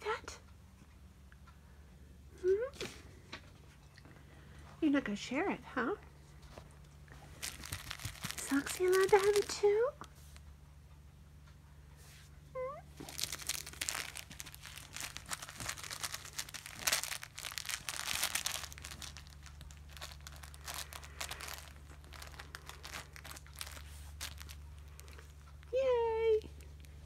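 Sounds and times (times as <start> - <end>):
cat scratching fabric toy: 7.2 - 10.5, 13.0 - 25.7.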